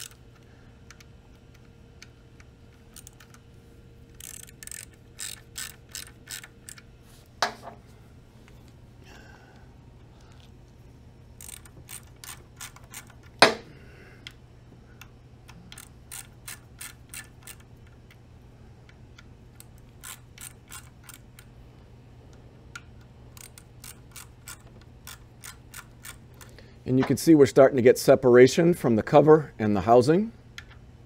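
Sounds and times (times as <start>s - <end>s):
hand ratchet clicking: 0.0s - 2.2s, 2.8s - 3.4s, 4.1s - 6.9s, 11.4s - 13.6s, 15.0s - 18.0s, 19.6s - 21.5s, 22.8s - 26.6s.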